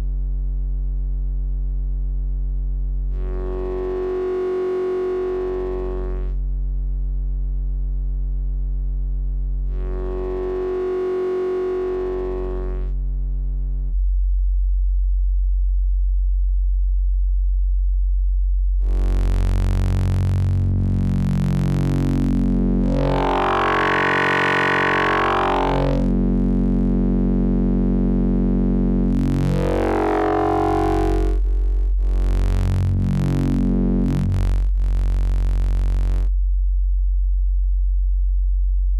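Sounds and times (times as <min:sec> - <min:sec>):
synthesizer low note changing timbre: 0:18.9 - 0:34.8.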